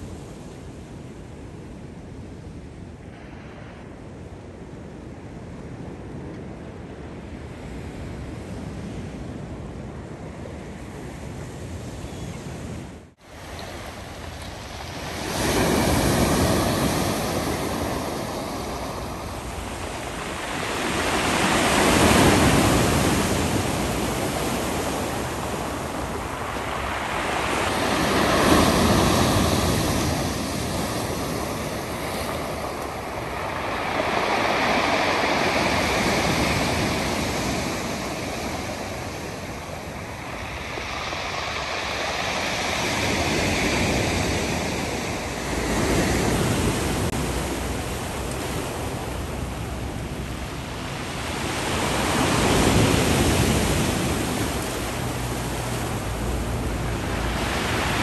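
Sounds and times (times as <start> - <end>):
surf washing over pebble beach: 13.3 - 58.0.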